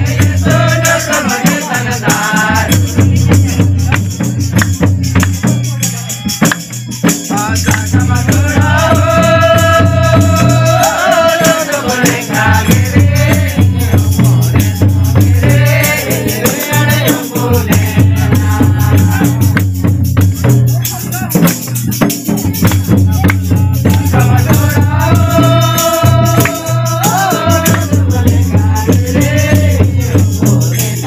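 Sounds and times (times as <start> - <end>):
barrel drums beating: 0.0 - 31.0
jingle rattle shaken: 0.0 - 31.0
voices singing: 0.0 - 31.0.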